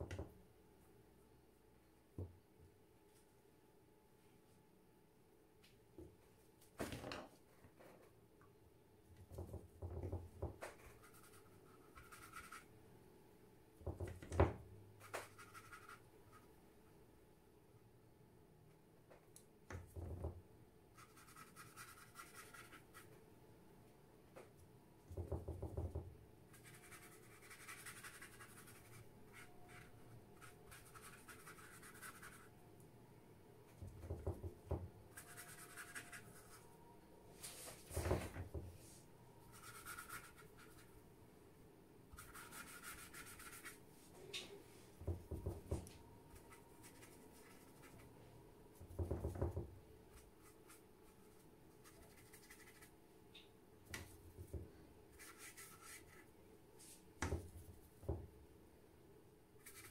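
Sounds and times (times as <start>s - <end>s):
brush swishing on paper: 37.3s - 38.0s.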